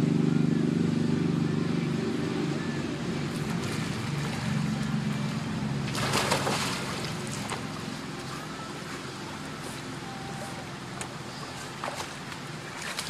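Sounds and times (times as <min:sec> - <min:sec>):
steady low hum: 0:00.0 - 0:13.0
water movement of swimming: 0:03.3 - 0:13.0
dog splashing into pool: 0:05.9 - 0:07.7.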